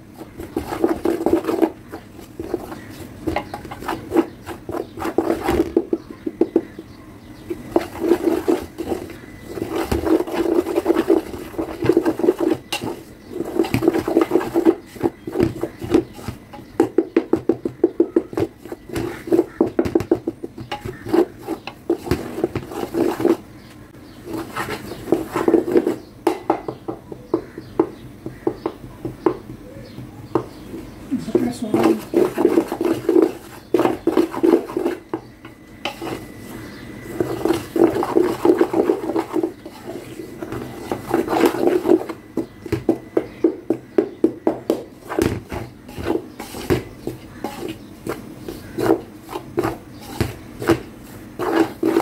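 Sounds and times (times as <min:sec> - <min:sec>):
spatula scraping steel pot: 0:00.0 - 0:06.8, 0:07.4 - 0:19.8, 0:20.5 - 0:23.5, 0:24.2 - 0:26.1, 0:31.2 - 0:42.2, 0:45.0 - 0:52.0.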